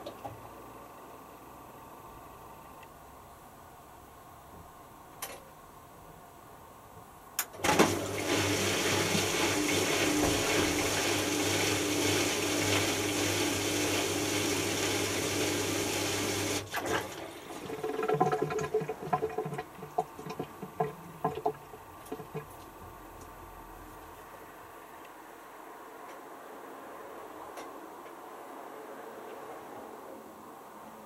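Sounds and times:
pump electric hum: 7.4s - 25.9s.

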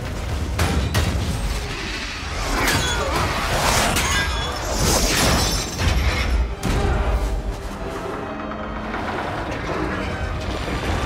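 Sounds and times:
metallic screeches and crashes: 2.0s - 6.5s.

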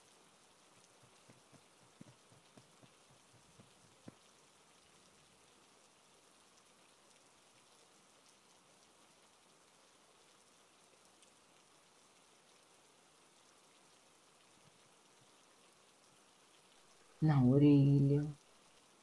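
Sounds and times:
faint steady hiss: 0.0s - 19.0s
tiny ticks: 0.6s - 5.1s.

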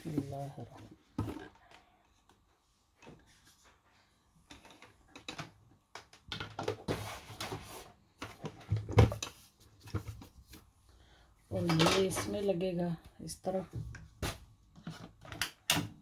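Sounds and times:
plastic parts knocking and clattering: 0.7s - 1.8s, 4.4s - 10.3s, 11.5s - 12.4s, 13.8s - 16.0s.

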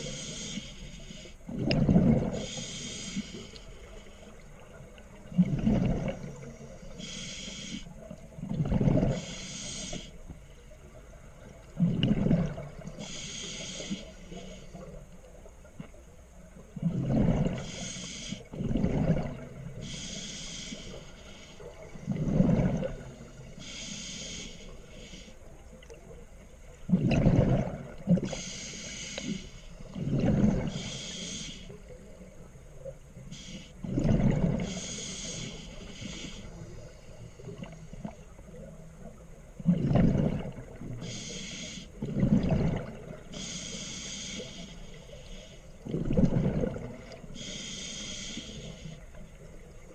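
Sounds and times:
regulator inhale hiss: 0.0s - 1.5s, 2.4s - 4.5s, 6.3s - 8.1s, 9.1s - 10.7s, 12.9s - 14.9s, 17.5s - 18.5s, 19.8s - 21.8s, 23.2s - 25.6s, 28.3s - 30.0s, 30.7s - 32.0s, 33.2s - 33.8s, 34.6s - 37.9s, 41.0s - 42.0s, 43.3s - 45.8s, 47.3s - 49.2s
exhaled bubbles rushing: 1.5s - 2.5s, 5.3s - 6.3s, 11.8s - 12.9s, 18.6s - 19.6s, 22.0s - 23.2s, 26.9s - 28.3s, 30.0s - 30.7s, 33.8s - 34.8s, 39.6s - 40.9s, 42.0s - 43.2s, 45.8s - 47.2s.

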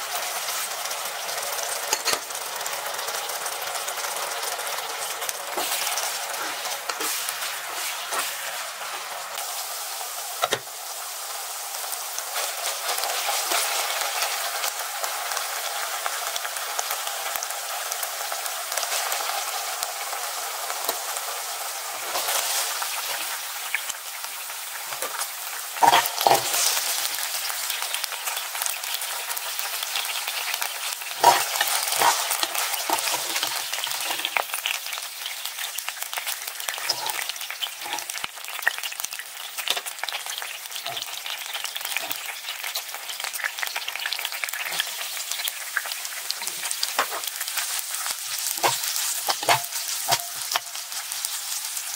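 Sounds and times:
meat sizzling in oil: 0.0s - 51.9s
tongs knocking and scraping pan: 25.8s - 26.7s, 31.2s - 34.4s, 36.8s - 38.2s, 46.4s - 47.3s, 48.6s - 50.7s.

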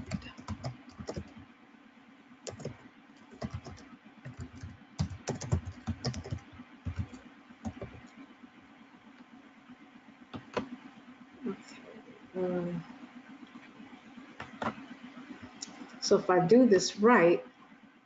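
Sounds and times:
keyboard typing clicks: 0.0s - 1.4s, 2.5s - 2.8s, 3.4s - 8.2s, 10.3s - 10.8s.

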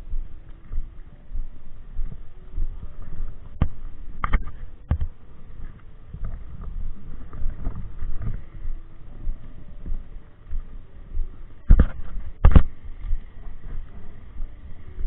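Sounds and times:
wind rumble on microphone: 0.0s - 15.0s
camera handling noise: 3.6s - 5.1s, 11.7s - 12.7s.

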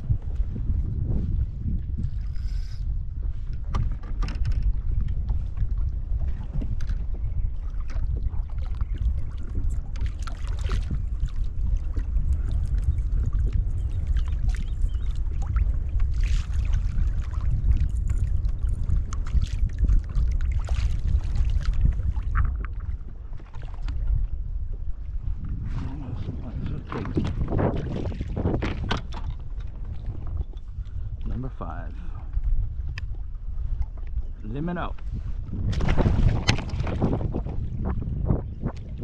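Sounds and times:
wind rumbling on microphone: 0.0s - 39.0s
clicks and rustles of fishing gear: 2.0s - 7.2s, 26.9s - 30.8s, 32.2s - 34.3s, 34.9s - 37.5s.

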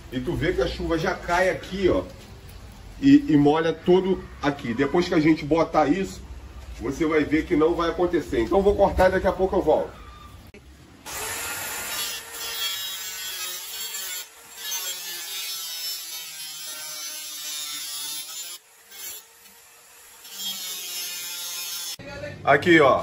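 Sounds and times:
electric saw cutting plastic pipe: 11.0s - 22.0s.

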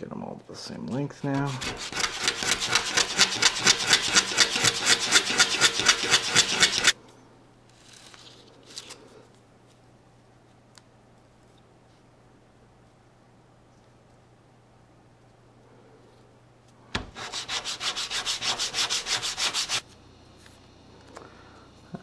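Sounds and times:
wood rubbing on sandpaper: 1.2s - 7.0s, 17.1s - 19.8s.

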